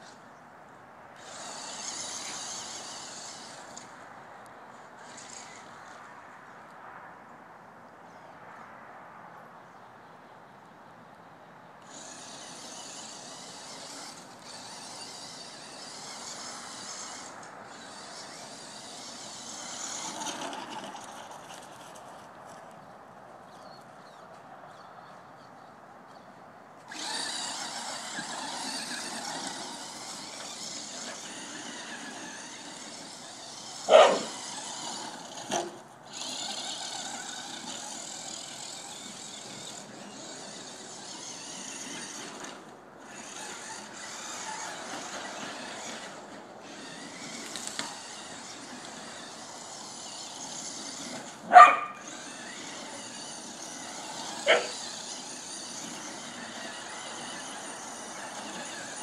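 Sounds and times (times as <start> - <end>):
electric toy car motor whine: 1.2 - 4.0, 5.0 - 6.0, 11.8 - 22.0, 26.8 - 59.0
dog barking: 33.9 - 34.3, 51.5 - 52.0, 54.5 - 54.8.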